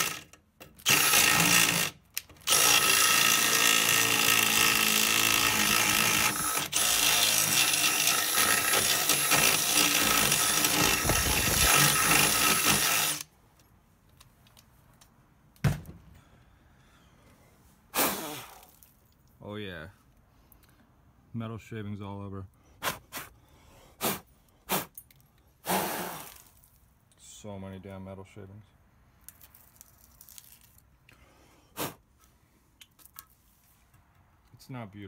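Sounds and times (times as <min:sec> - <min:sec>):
power drill boring metal: 0:00.0 - 0:13.3.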